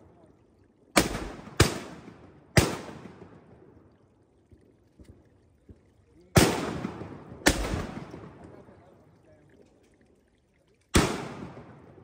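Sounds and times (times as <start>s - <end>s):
shotgun shots echoing: 1.0s - 3.4s, 6.4s - 8.4s, 11.0s - 12.0s.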